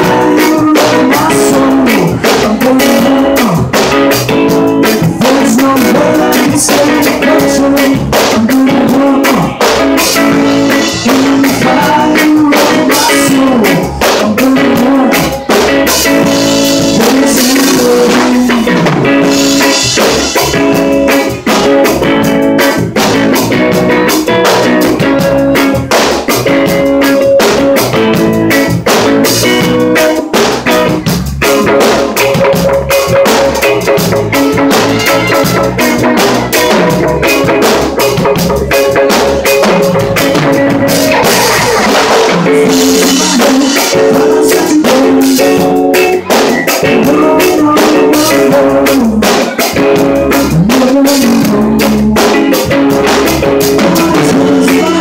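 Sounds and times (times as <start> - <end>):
drum hits: 0.0 - 55.0
live band playing: 0.0 - 55.0.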